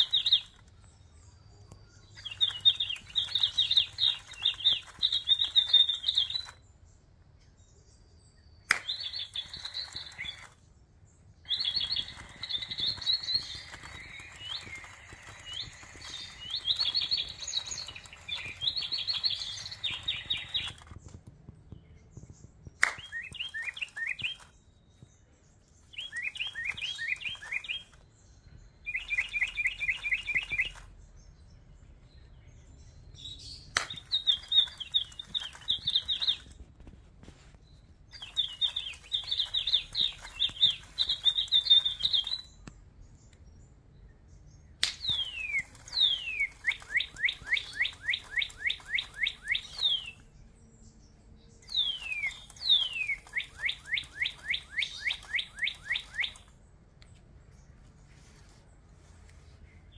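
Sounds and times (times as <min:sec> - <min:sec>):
toy speaker bird chirps: 0:00.0 - 0:00.6, 0:02.2 - 0:06.6, 0:08.7 - 0:10.6, 0:11.5 - 0:21.0, 0:22.8 - 0:24.5, 0:26.0 - 0:28.0, 0:28.9 - 0:30.8, 0:33.8 - 0:36.6, 0:38.2 - 0:42.6, 0:45.0 - 0:50.2, 0:51.7 - 0:56.5.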